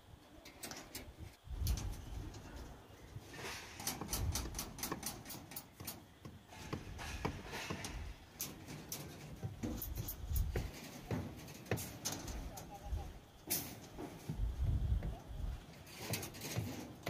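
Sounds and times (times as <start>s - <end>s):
metallic clicks of tying rebar wire: 0.4s - 2.7s, 3.6s - 6.0s, 6.7s - 12.8s.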